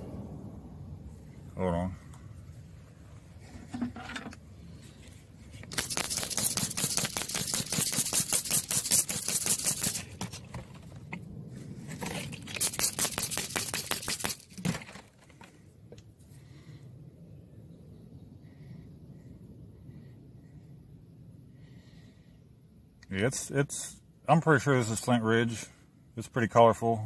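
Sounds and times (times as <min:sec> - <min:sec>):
stone scraping on wet sand: 0:05.6 - 0:10.9, 0:11.7 - 0:14.8.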